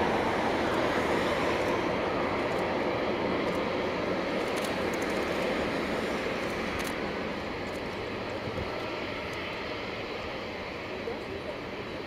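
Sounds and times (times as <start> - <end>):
jet engines rushing: 0.0 - 12.0.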